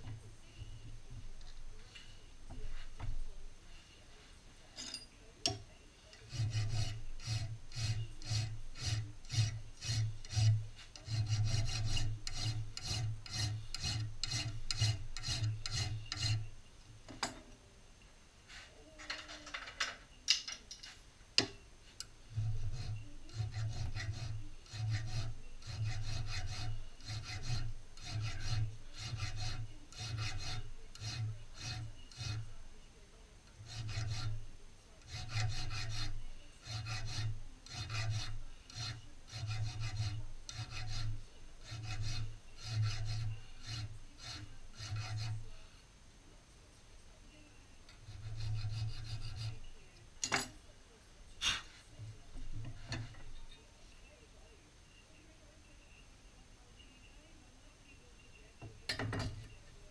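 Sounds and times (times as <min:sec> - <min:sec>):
hand file rasping on steel: 0:06.1 - 0:16.5, 0:22.3 - 0:32.6, 0:33.5 - 0:45.6, 0:47.9 - 0:49.7, 0:52.4 - 0:53.3.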